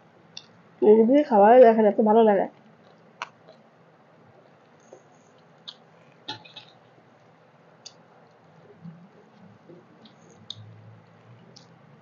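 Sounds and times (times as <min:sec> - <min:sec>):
chewing smacks: 0:02.6 - 0:03.7, 0:04.3 - 0:06.8.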